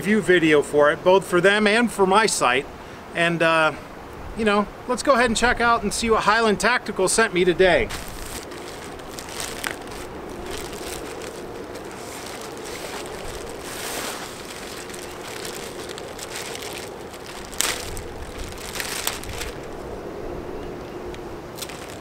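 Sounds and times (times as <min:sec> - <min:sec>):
plastic packaging crinkling: 0:07.8 - 0:19.8, 0:21.6 - 0:22.0.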